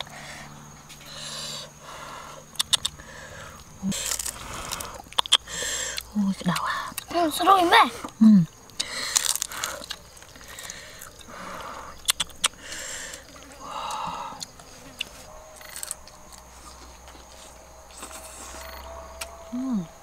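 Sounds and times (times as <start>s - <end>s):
insects buzzing: 0.0s - 20.0s
wet chewing smacks: 2.5s - 7.1s, 8.5s - 19.3s.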